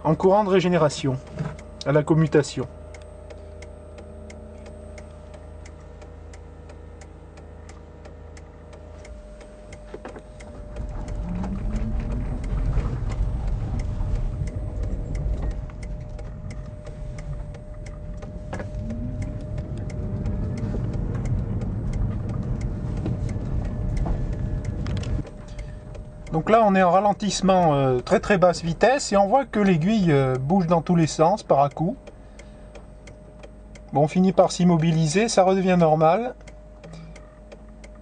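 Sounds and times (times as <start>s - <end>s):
road rumble: 0.0s - 38.0s
hazard light flasher ticking: 0.6s - 38.0s
electric car drivetrain whining: 9.0s - 32.6s.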